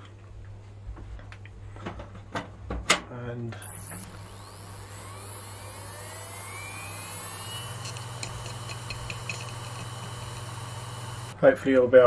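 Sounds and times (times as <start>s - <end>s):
hard disk spinning up: 3.6s - 11.4s
hard disk ticks: 3.8s - 11.4s.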